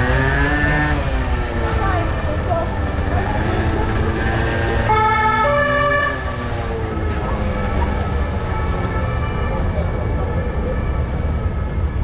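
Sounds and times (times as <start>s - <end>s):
street traffic rumble: 0.0s - 12.0s
wind: 0.0s - 12.0s
two-tone siren: 3.8s - 6.6s.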